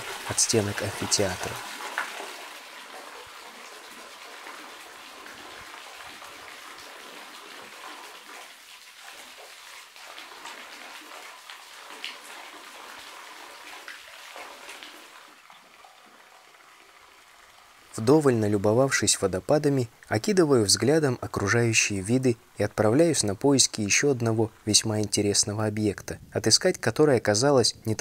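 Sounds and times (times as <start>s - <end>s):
water splashing into a pool: 0.0s - 18.0s.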